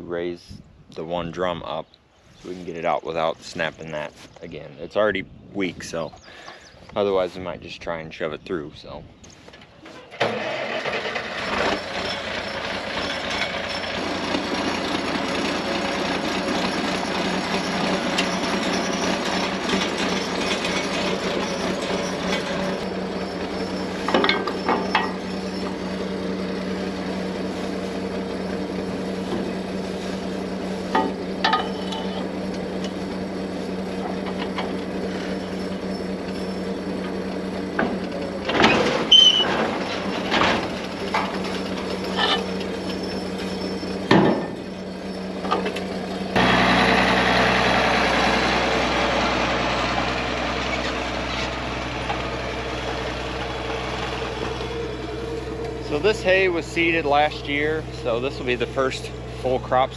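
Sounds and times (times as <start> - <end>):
tractor diesel engine running: 9.8 - 59.9
low hum: 11.9 - 59.9
metal clanks from pipe wrench: 24.1 - 25.2, 30.9 - 32.3.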